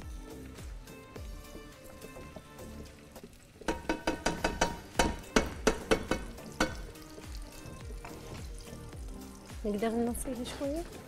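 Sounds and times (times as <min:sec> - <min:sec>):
vegetables sizzling in a frying pan: 0:00.0 - 0:11.0
sharp clicks and knocks in pan: 0:02.0 - 0:08.7.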